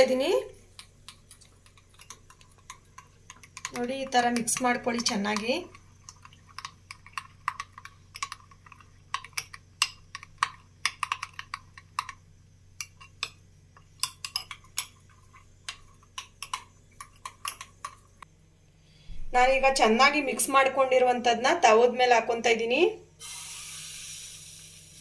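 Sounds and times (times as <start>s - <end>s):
spoon beating egg in glass bowl: 0.0s - 12.2s, 12.8s - 18.2s.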